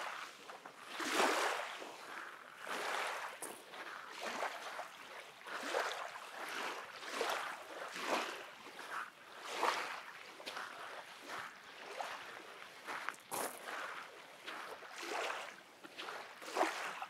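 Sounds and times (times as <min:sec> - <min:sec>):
footsteps crunching on sand: 0:10.4 - 0:14.9.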